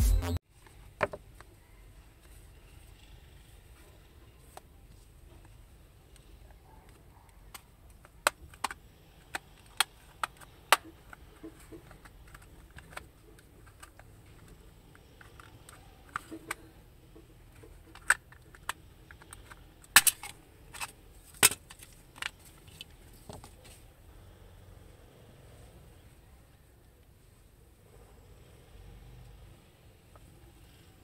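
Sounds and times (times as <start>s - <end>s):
plastic clips clicking and cracking: 17.6s - 22.9s.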